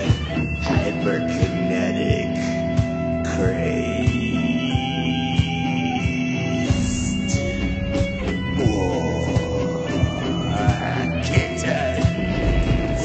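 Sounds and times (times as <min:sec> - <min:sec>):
rock guitar: 0:00.0 - 0:13.0
steady drum beat: 0:00.0 - 0:13.0
sliding swooping tones: 0:06.5 - 0:10.8.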